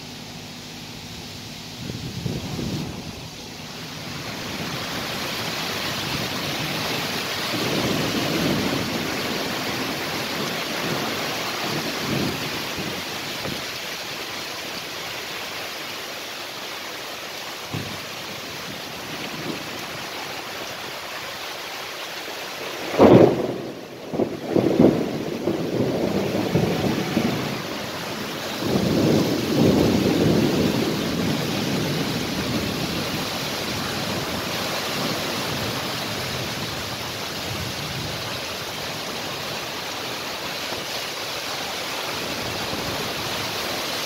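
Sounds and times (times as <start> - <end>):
heavy rain hissing: 0.0 - 44.0
thunder rumble: 0.9 - 13.8, 17.7 - 20.7, 22.6 - 40.9
wind gusts: 0.9 - 14.8, 17.7 - 44.0.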